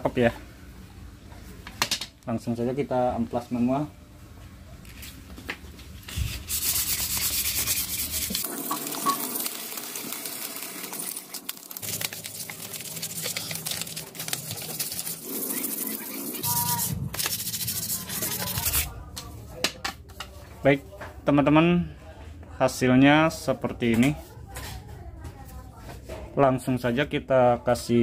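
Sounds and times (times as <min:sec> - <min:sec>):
sandpaper rubbing on wood: 0:06.1 - 0:08.5, 0:12.6 - 0:18.9.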